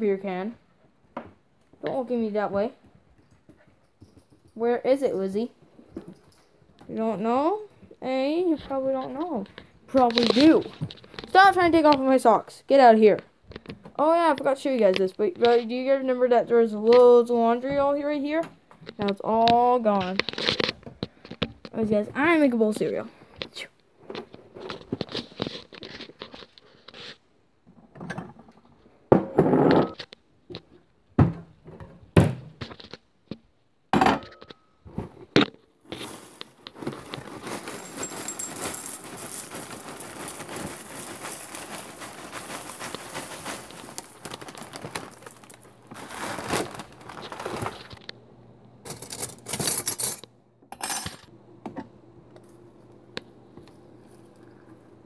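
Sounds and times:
plastic bag rustling: 8.5s - 12.4s, 35.8s - 48.1s
cereal pouring into a bowl: 36.0s - 47.7s.

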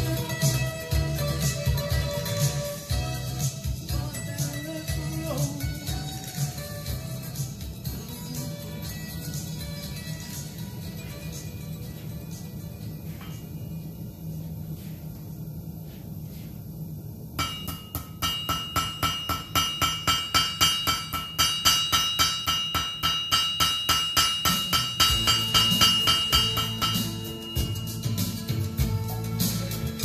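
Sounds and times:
hammer ringing on anvil: 17.4s - 28.4s.

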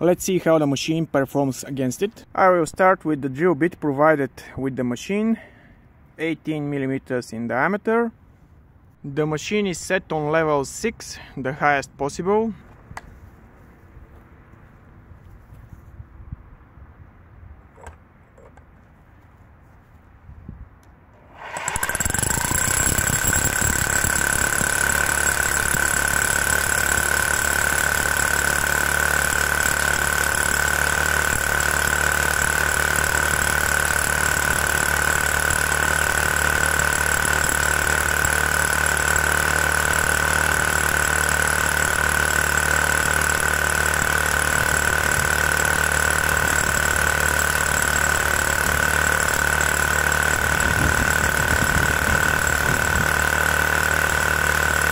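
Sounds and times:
hammer drill drilling into stone: 21.2s - 54.9s.

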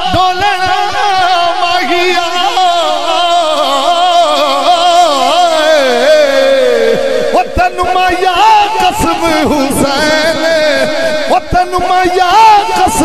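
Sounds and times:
man singing into a microphone: 0.0s - 13.0s.

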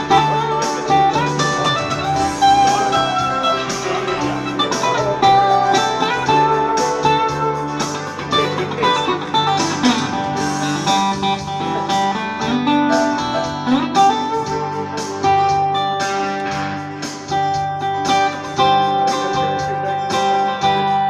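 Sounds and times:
acoustic guitar playing: 0.0s - 21.0s.

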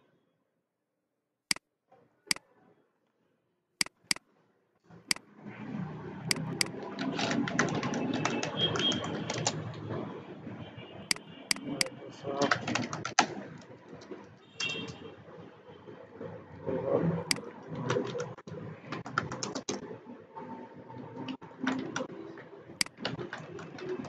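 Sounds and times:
computer mouse clicks: 3.8s - 4.2s, 6.3s - 9.7s
keyboard typing: 3.8s - 4.2s, 6.3s - 9.8s, 11.1s - 13.4s, 17.3s - 19.9s, 22.8s - 24.0s.

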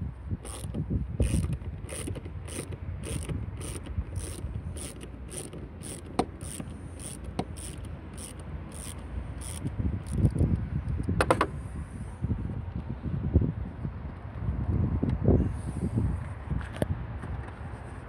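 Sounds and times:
socket ratchet clicking: 0.4s - 11.5s.

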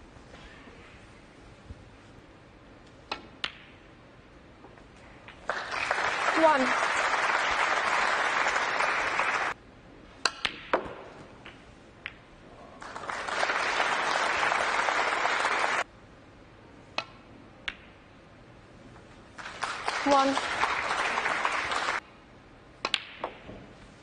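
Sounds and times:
audience applause: 5.5s - 9.6s, 12.8s - 15.8s, 19.4s - 22.0s
snooker balls clicking: 16.9s - 18.0s, 22.8s - 23.6s.

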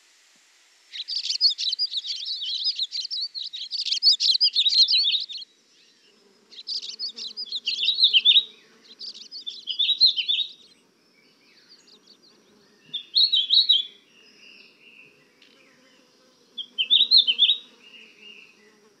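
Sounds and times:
songbirds twittering: 0.9s - 18.9s.

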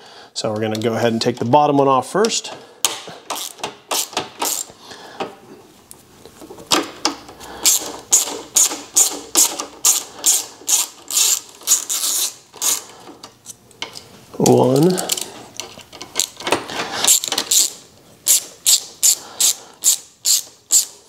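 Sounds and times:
ratcheting driver clicking: 3.3s - 4.7s, 7.6s - 12.9s, 15.1s - 21.0s.

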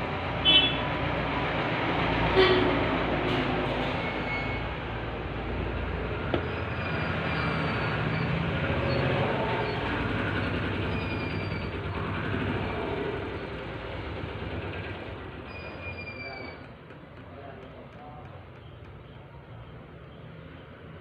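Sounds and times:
faint high squeals: 3.9s - 4.8s, 6.4s - 12.0s, 15.4s - 16.8s.

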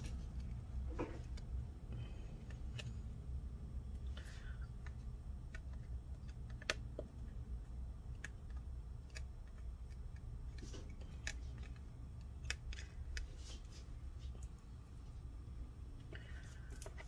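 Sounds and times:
low steady hum: 0.0s - 17.0s.

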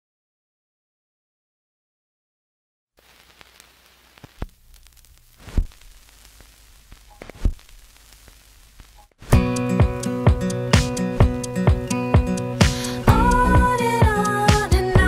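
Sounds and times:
vinyl crackle and hiss: 3.0s - 9.5s.

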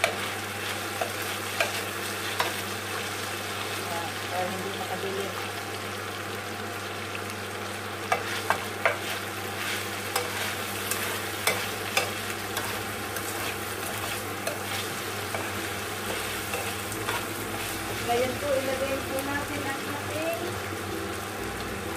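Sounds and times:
food sizzling in a frying pan: 0.0s - 21.9s
spatula scraping a pan: 8.1s - 18.1s.

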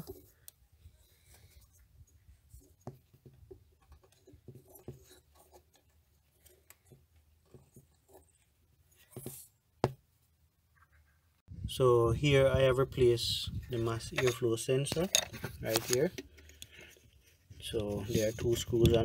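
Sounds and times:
plastic clicks and rubbing: 14.2s - 19.0s.

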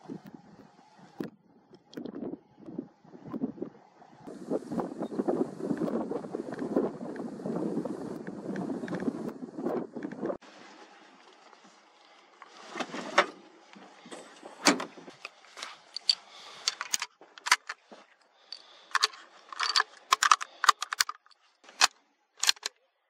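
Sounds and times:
rifle handling rustling and knocking: 11.2s - 22.8s
metallic clicks of cartridges loading: 15.2s - 17.8s, 18.4s - 22.8s.

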